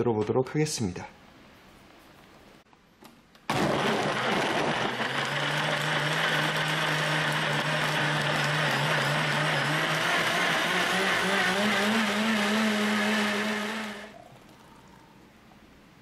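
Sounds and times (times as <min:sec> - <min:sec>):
blender motor running: 0:03.5 - 0:14.2.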